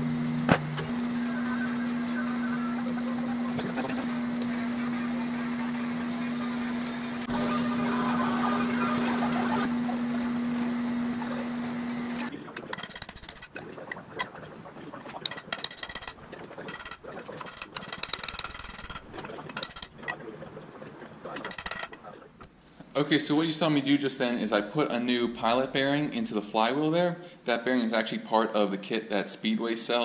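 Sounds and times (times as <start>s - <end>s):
drill press motor humming: 0.0s - 13.5s.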